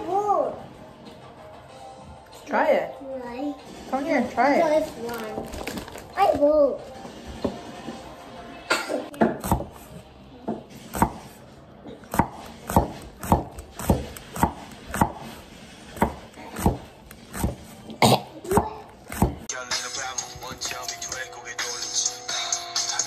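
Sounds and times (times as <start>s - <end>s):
cleaver slicing peppers: 9.3s - 9.9s, 10.8s - 11.4s, 12.0s - 19.5s.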